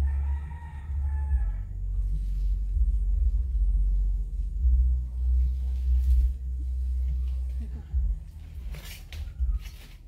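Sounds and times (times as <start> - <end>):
rooster crowing: 0.0 - 2.2, 7.7 - 10.0
steady low rumble: 0.0 - 10.0.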